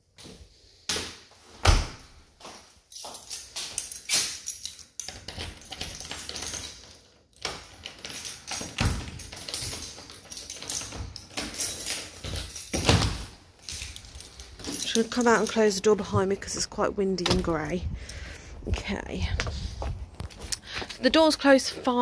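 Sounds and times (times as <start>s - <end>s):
wind buffeting microphone: 17.3s - 20.4s.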